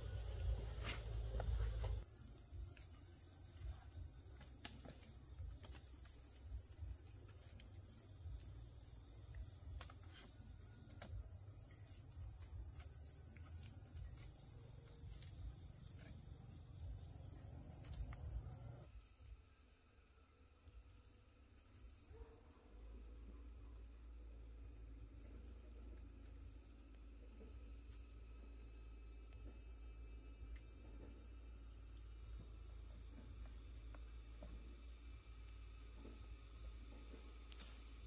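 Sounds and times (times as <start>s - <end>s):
insect trilling: 2.0s - 18.9s.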